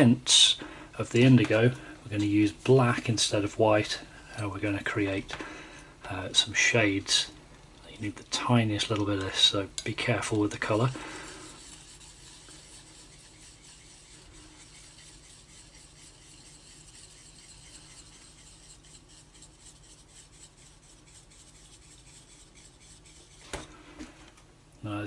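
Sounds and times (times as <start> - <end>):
palette knife scraping paint: 10.3 - 23.6.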